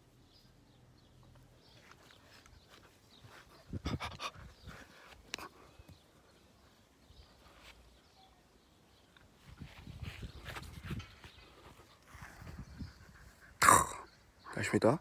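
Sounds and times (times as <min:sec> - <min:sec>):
small dog panting: 0:02.8 - 0:05.6, 0:11.7 - 0:13.6
sharp knocks and rustles: 0:09.8 - 0:12.6.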